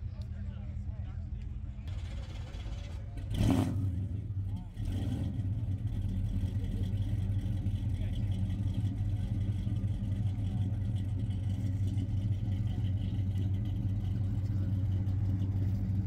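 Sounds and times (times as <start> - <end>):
faint voices of people: 0.0 - 15.8
car engine idling: 0.0 - 16.0.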